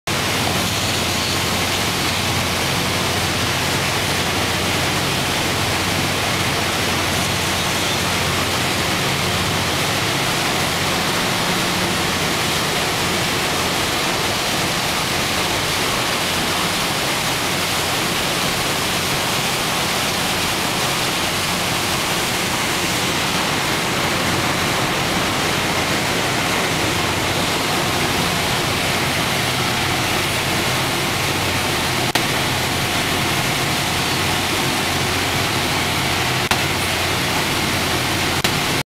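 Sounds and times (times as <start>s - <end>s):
paddlewheel churning water: 0.1s - 38.8s
steam engine running: 0.1s - 38.8s.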